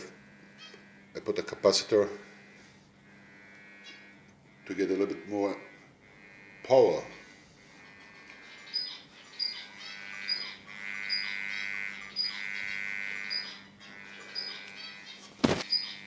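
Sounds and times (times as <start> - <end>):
transformer electrical buzz: 0.0 - 16.0.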